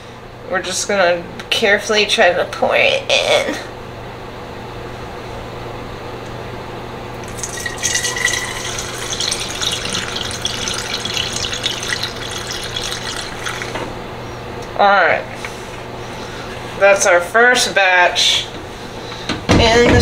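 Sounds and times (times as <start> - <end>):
liquid pouring into bottle: 7.2 - 13.9.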